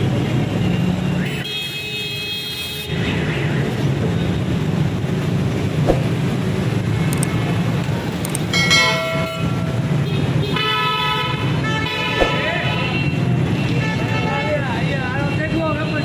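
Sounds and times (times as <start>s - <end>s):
traffic engine rumble: 0.0s - 1.4s, 2.9s - 16.0s
vehicle horn: 10.0s - 13.1s.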